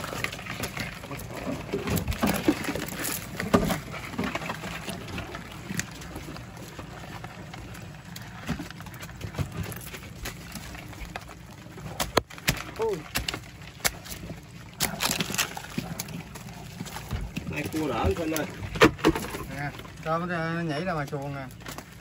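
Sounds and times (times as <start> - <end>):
clicks and knocks of shellfish: 0.0 - 20.1, 21.0 - 22.0
wet rustling: 0.0 - 22.0.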